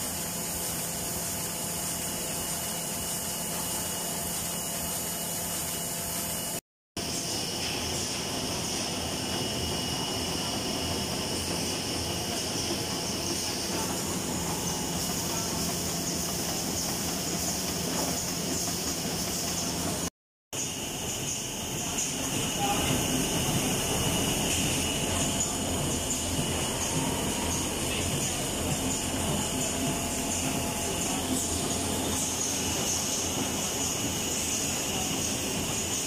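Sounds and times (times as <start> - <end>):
machine running: 0.0 - 36.0.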